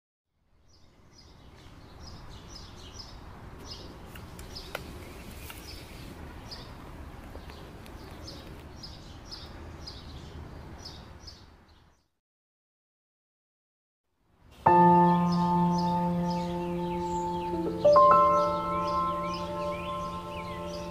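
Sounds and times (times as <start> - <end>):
outdoor background hiss: 0.3 - 12.0, 14.1 - 20.9
small birds chirping: 0.6 - 12.1, 14.7 - 20.9.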